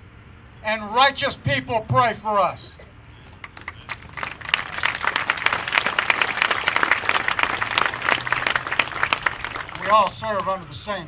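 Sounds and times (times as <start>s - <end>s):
audience applauding: 3.2s - 10.8s.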